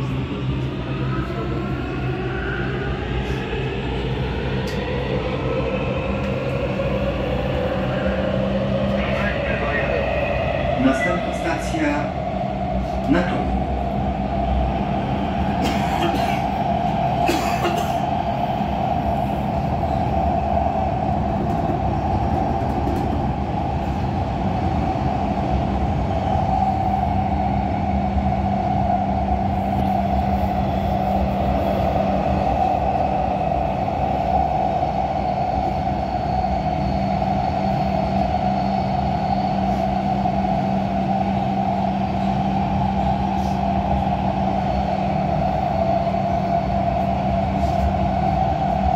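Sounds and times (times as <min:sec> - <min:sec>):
train rumbling inside passenger car: 0:00.0 - 0:48.9.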